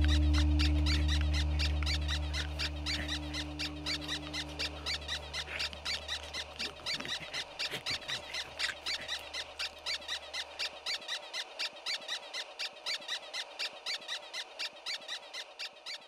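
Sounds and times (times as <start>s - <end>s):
low steady hum: 0.0s - 9.9s.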